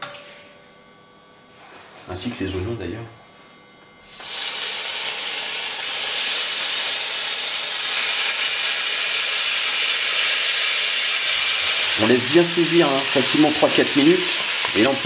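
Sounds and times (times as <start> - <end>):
meat sizzling in hot oil: 4.0 - 15.0.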